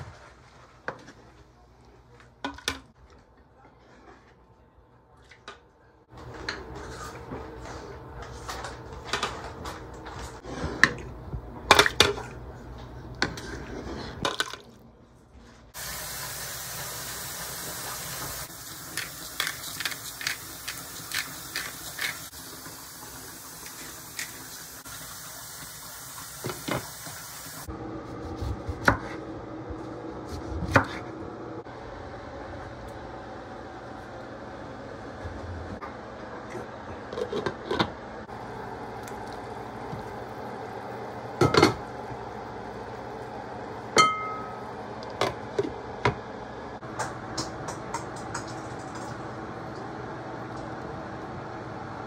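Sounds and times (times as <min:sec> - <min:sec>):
kitchenware clattering: 0:41.4 - 0:41.8, 0:44.0 - 0:44.6.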